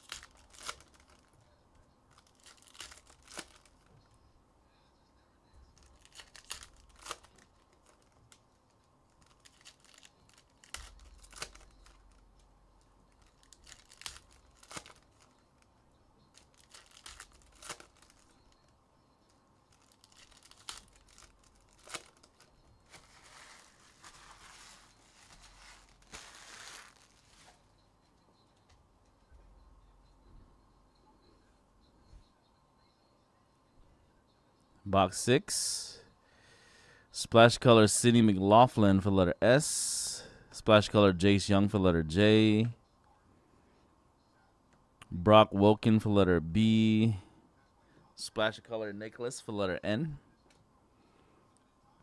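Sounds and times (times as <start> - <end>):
wrapper crinkling: 0.0 - 1.4, 2.1 - 3.9, 5.8 - 12.4, 13.1 - 15.7, 16.3 - 18.7, 19.7 - 27.6
wrappers ripping: 0.0 - 1.4, 2.1 - 3.9, 5.8 - 8.4, 9.1 - 12.2, 13.1 - 15.7, 16.3 - 18.3, 19.7 - 27.6.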